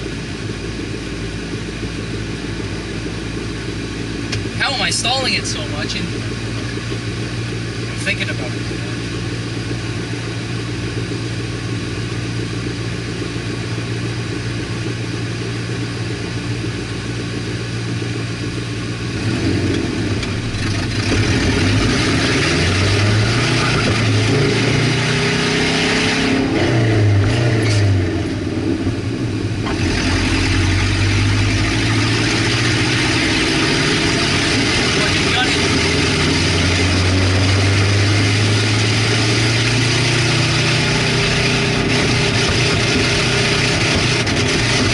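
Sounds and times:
car engine idling and revving: 0.0 - 44.9.

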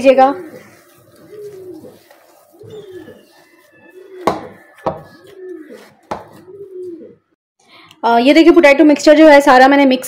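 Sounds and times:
pigeon cooing: 0.3 - 7.4.

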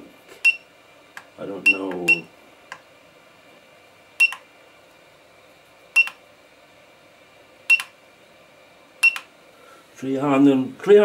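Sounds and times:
short beeps: 4.2 - 4.4, 6.0 - 6.2.

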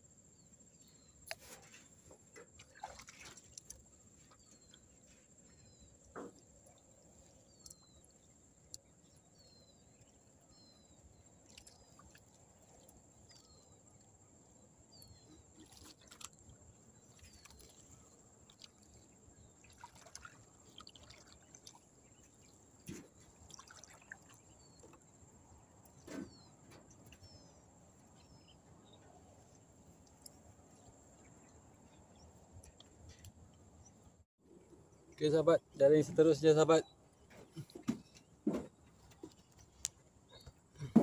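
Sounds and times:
water dripping and trickling: 2.3 - 9.4, 10.0 - 14.1, 15.6 - 25.1.

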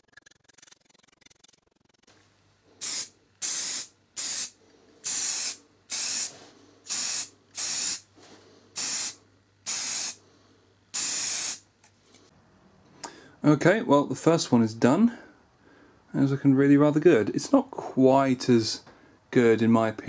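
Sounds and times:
spray paint can hissing: 2.8 - 8.1, 8.8 - 10.2, 10.9 - 11.7.

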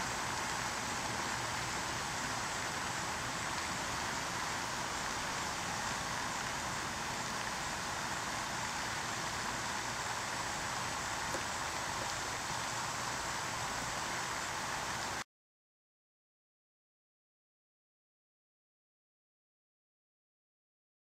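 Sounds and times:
water splashing along shoreline: 0.0 - 15.2.

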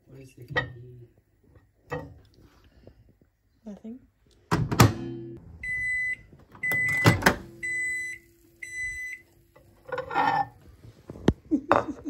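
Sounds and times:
microwave door click: 4.5 - 5.3, 6.6 - 7.6
microwave oven humming: 4.8 - 9.8
keypad beeps: 5.6 - 9.2.

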